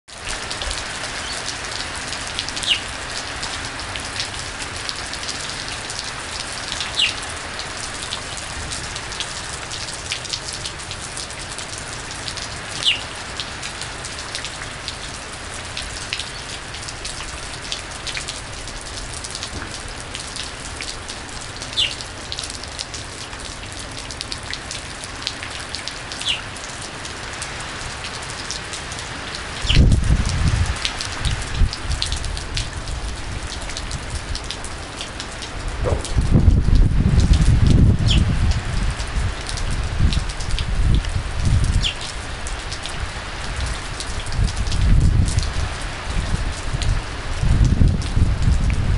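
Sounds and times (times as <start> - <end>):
heavy rain pouring: 0.1 - 48.9
sharp water splash: 35.8 - 36.6.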